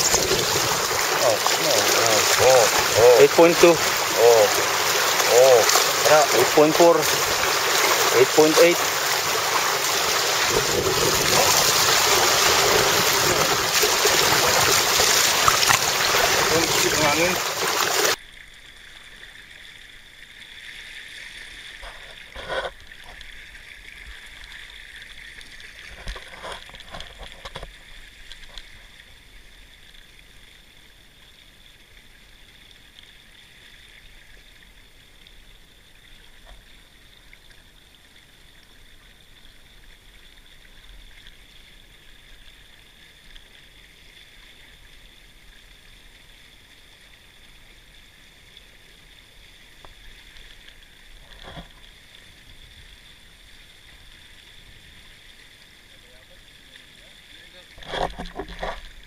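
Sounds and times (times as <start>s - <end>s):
water rushing along hulls: 0.0s - 29.4s.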